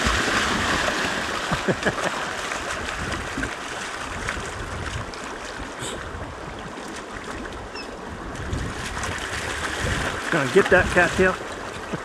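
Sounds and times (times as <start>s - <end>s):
dogs splashing in water: 0.0s - 5.8s, 8.3s - 12.0s
wind rumbling on microphone: 2.6s - 12.0s.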